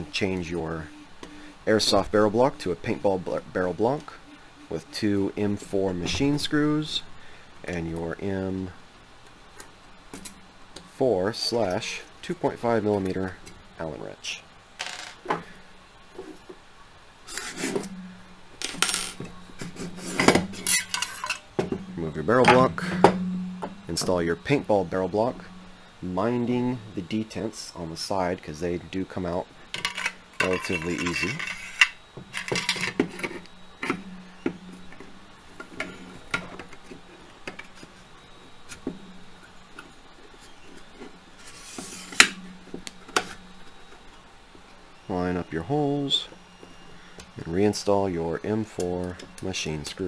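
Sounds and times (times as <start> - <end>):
faint steady hum: 0.0 - 50.0
metal parts clinking and scraping: 18.6 - 21.5, 29.8 - 34.0.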